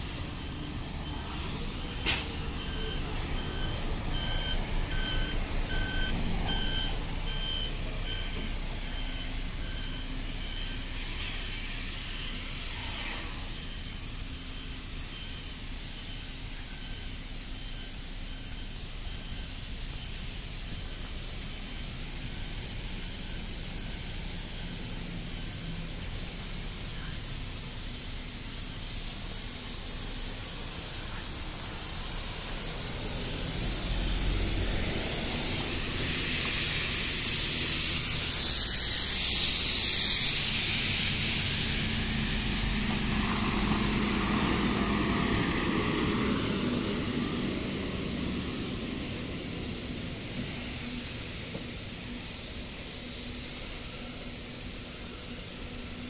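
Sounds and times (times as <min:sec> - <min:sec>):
steady high hiss: 0:00.0 - 0:56.0
vehicle engines running: 0:00.0 - 0:56.0
repeating electronic beep: 0:00.4 - 0:10.9.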